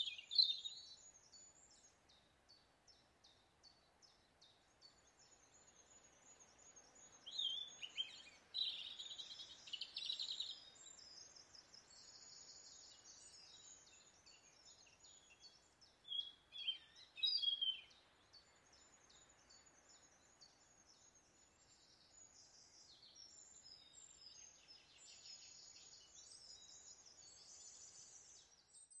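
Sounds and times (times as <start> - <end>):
woodland birds chirping: 0.0 - 29.0.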